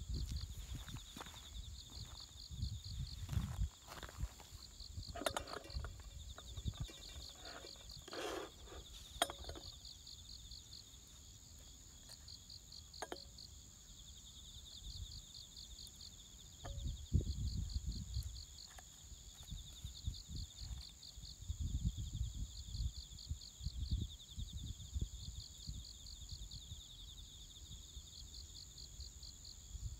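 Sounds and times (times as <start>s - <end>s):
insects chirping: 0.0s - 29.9s
coffee filter and glass clinks: 5.1s - 9.9s, 13.0s - 13.4s.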